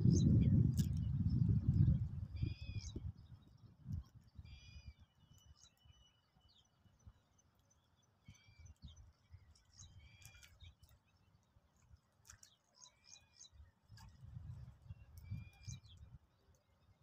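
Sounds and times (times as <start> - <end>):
sparrows chirping: 14.9 - 16.9.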